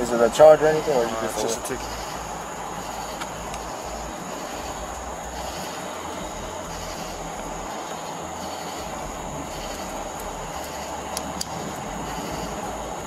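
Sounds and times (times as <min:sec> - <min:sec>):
constant high hiss: 0:00.0 - 0:13.0
low rumble: 0:01.6 - 0:13.0
faint clicks: 0:03.0 - 0:03.7, 0:09.7 - 0:12.4.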